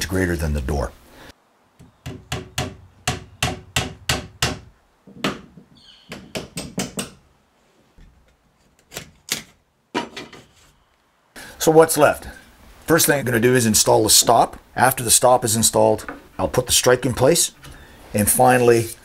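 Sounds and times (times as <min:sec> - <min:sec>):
hammer striking wood: 0:02.0 - 0:07.2.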